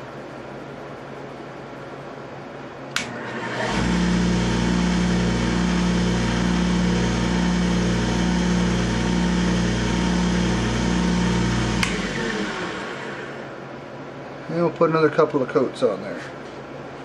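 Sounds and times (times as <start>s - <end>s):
lathe motor humming: 3.0s - 13.6s
cloth buffing spinning wood: 3.1s - 13.6s.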